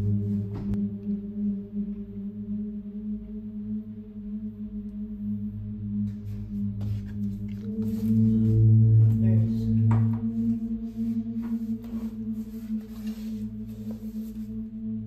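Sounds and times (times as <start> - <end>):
low drone film score: 0.0 - 15.0.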